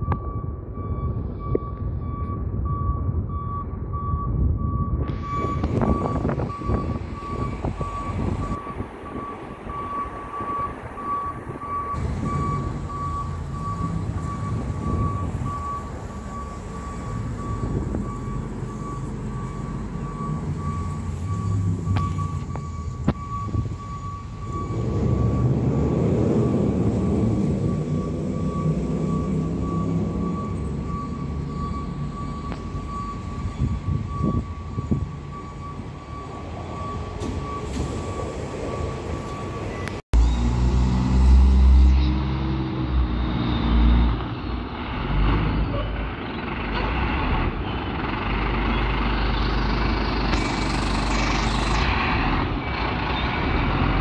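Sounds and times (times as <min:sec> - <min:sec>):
back-up alarm beeping: 0:00.0 - 0:40.4
truck engine running: 0:44.7 - 0:54.0.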